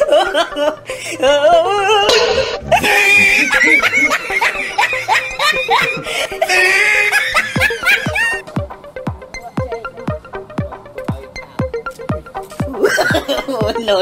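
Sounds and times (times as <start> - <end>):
person laughing in bursts: 2.1 - 8.4, 12.7 - 13.8.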